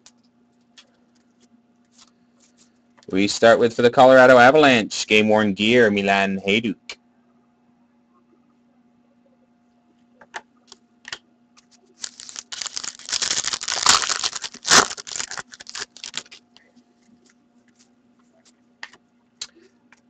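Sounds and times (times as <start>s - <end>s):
trading cards rustling and clicking: 11.6s - 16.6s
cards snapping: 12.0s - 16.4s.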